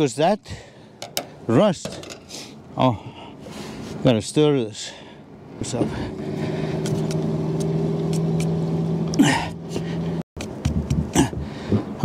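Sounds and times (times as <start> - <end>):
low engine hum: 5.3 - 12.0
breathy vocal sound: 9.1 - 10.2.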